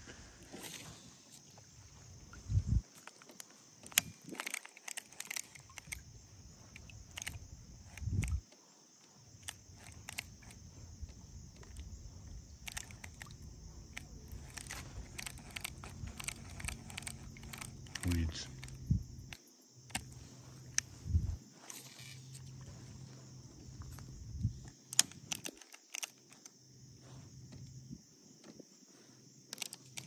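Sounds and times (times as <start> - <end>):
steady high-pitched hiss: 0.0 - 30.0
fishing tackle clicks and knocks: 2.9 - 8.6, 9.4 - 20.9, 23.8 - 26.6, 29.5 - 30.0.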